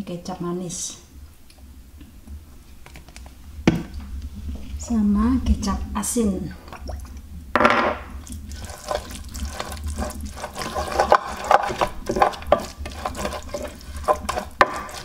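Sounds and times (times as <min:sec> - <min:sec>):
pestle scraping paste in clay bowl: 0:08.6 - 0:15.0.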